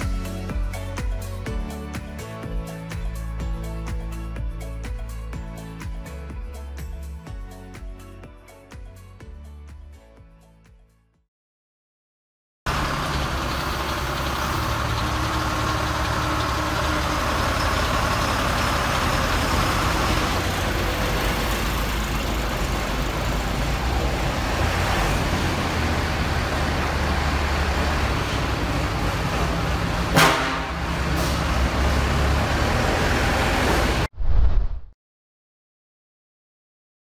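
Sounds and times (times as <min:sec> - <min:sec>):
diesel truck engine idling: 0:12.7 - 0:30.1.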